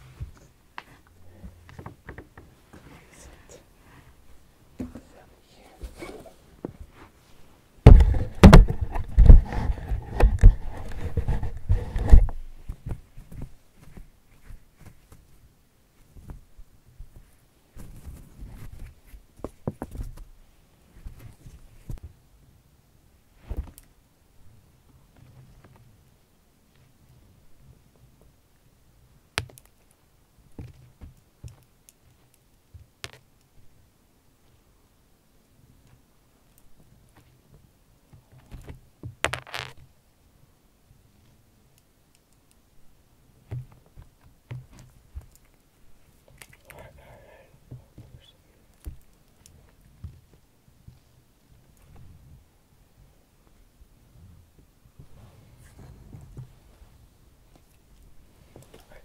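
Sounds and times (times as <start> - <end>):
light clicks and soft taps: 29.3 - 33.7, 41.2 - 42.7, 43.4 - 52.4.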